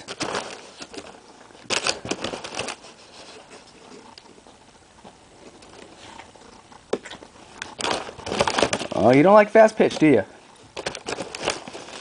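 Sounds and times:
dog crunching popcorn: 0.0 - 12.0.

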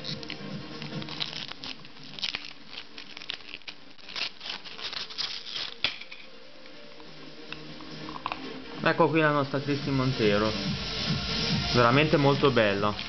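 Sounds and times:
plastic wrapping crinkling: 0.0 - 6.3, 11.9 - 13.0.

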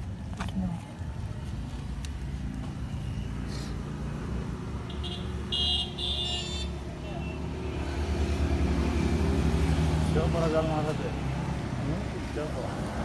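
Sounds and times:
road traffic rumble: 0.0 - 13.0
vehicle horn toots: 4.9 - 7.4.

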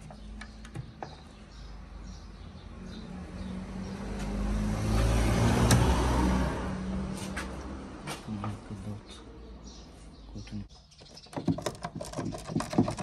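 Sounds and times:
vehicle passing by: 1.9 - 10.1.

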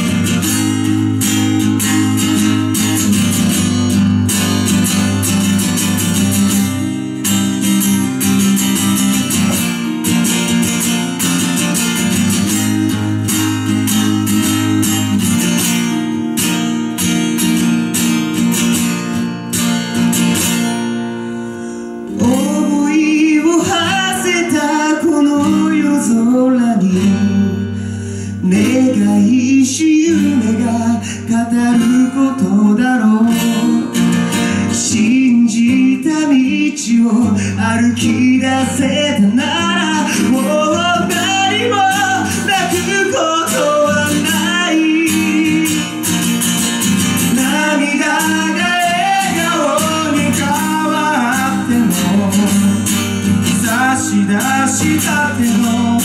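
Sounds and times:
acoustic guitar strumming: 0.0 - 56.0
man singing: 22.0 - 56.0.

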